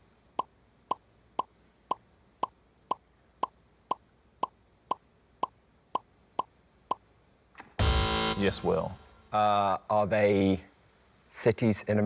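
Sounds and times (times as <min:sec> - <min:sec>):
game show blips: 0:00.4 - 0:07.1.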